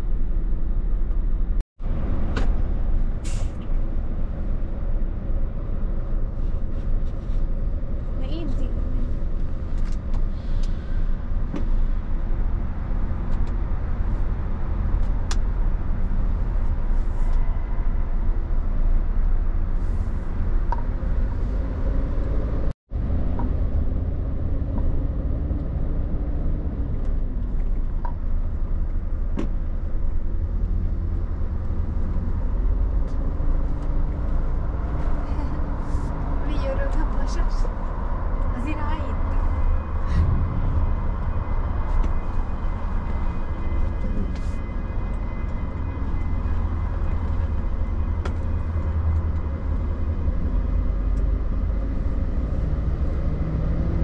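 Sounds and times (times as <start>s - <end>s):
low engine rumble: 0.0s - 54.0s.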